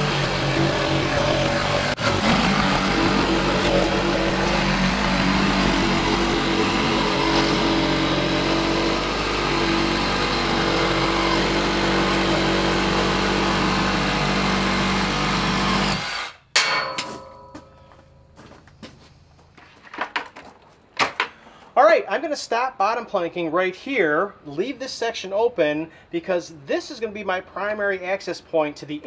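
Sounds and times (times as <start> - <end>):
power tool motor running: 0.0 - 16.4
ringing knock: 16.6 - 18.3.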